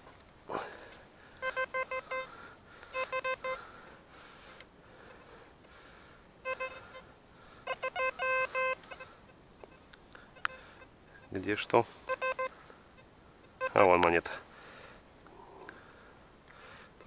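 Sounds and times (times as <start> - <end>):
metal detector beeping: 1.4 - 3.7, 6.4 - 14.2.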